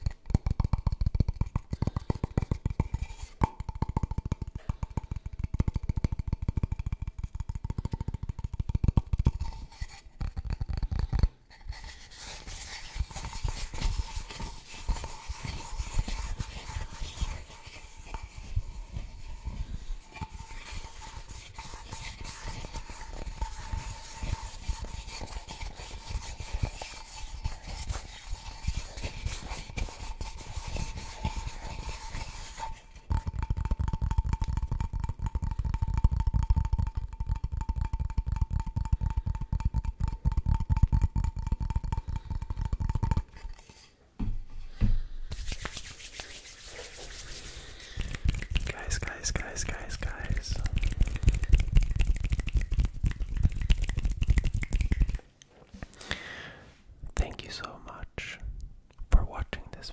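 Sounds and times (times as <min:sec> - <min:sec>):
fingers tapping on wood: 0:00.1 - 0:09.4
scratching and rubbing on wood: 0:00.3 - 0:37.0, 0:45.3 - 0:55.2.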